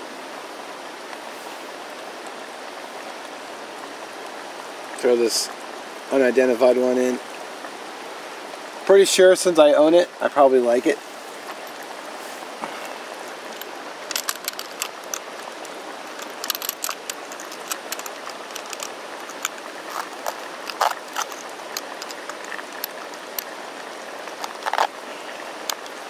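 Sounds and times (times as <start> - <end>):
bubbling pasta popping: 14.1 - 25.0.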